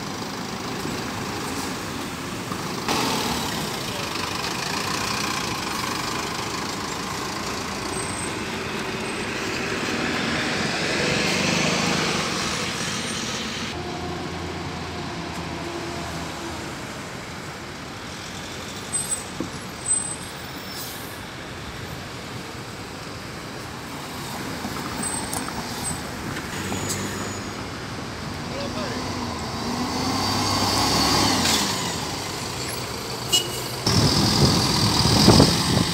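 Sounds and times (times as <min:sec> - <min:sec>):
bus engine accelerating: 0:00.0 - 0:18.7, 0:24.4 - 0:35.9
street traffic: 0:00.0 - 0:35.9.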